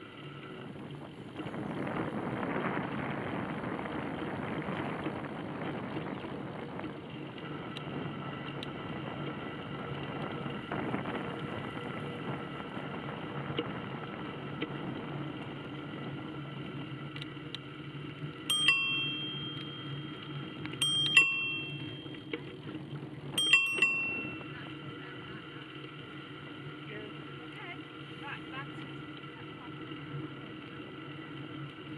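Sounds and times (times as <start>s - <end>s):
bicycle rolling on pavement: 0.0s - 31.9s
wind noise: 0.5s - 17.0s
bicycle bell ringing: 18.5s - 22.6s, 23.3s - 24.8s.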